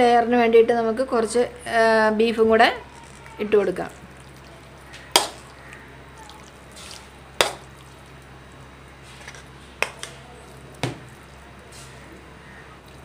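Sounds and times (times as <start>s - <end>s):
spoon scraping: 9.0s - 13.0s.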